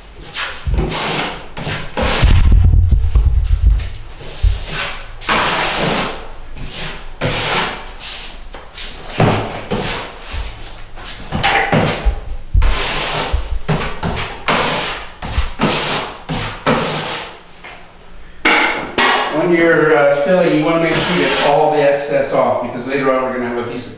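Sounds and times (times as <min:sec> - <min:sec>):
drywall knife scraping compound: 0:00.2 - 0:02.3, 0:04.2 - 0:17.4, 0:20.8 - 0:21.8.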